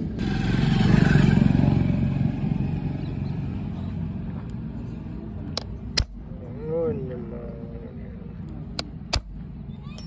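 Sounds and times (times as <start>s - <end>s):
vehicle engine passing by: 0.0s - 5.4s.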